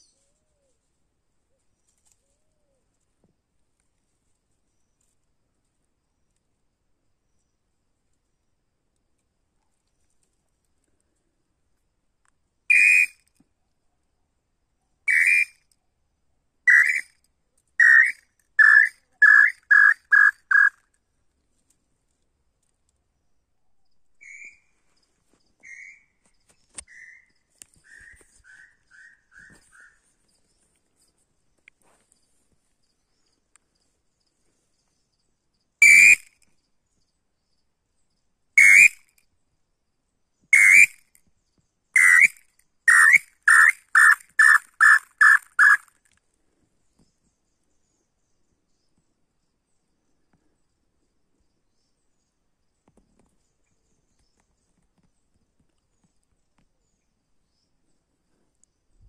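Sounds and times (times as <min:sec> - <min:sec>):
bird whistled song: 0:12.7 - 0:13.2, 0:15.1 - 0:15.6, 0:16.7 - 0:17.1, 0:17.8 - 0:20.7, 0:24.2 - 0:24.8, 0:25.6 - 0:26.2, 0:26.9 - 0:30.0, 0:35.8 - 0:36.4, 0:38.6 - 0:39.0, 0:40.6 - 0:41.0, 0:42.0 - 0:45.8.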